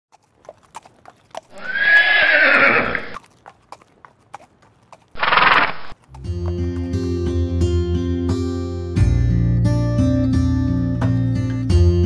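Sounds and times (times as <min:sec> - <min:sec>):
hoof clip-clops: 0:00.1 - 0:07.0
horse neighing: 0:01.5 - 0:03.2, 0:05.2 - 0:06.0.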